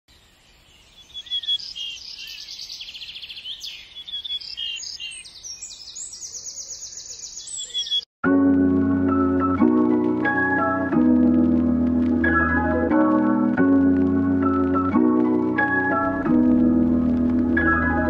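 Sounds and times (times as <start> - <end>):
songbirds chirping and trilling: 0.1 - 8.1
organ music: 8.2 - 18.0.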